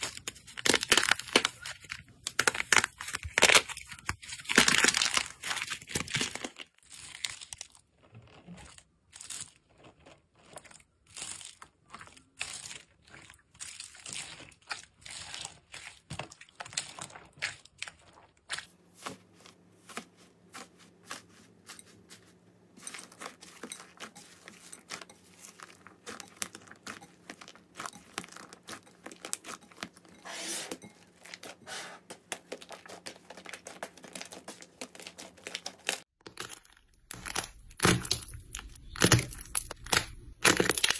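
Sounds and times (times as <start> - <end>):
slime tearing and crackling: 0.0 - 18.7, 32.3 - 40.9
dried clay crackling and crunching: 0.0 - 40.9.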